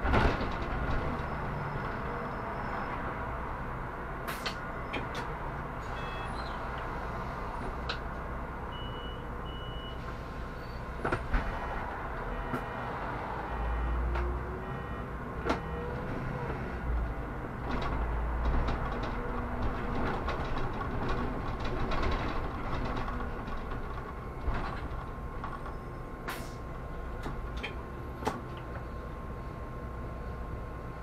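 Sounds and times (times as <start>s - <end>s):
bus drivetrain and road rumble: 0.0s - 31.0s
body knocks and rattles: 17.6s - 25.7s.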